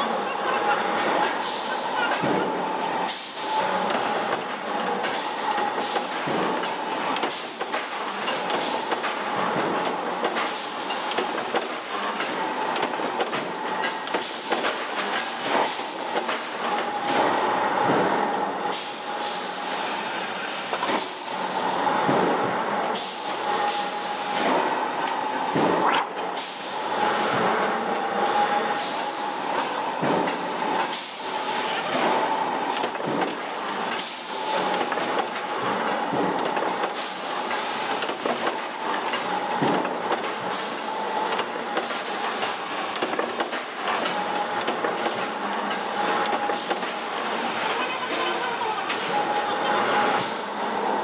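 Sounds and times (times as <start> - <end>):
machinery noise: 47.1 - 50.2.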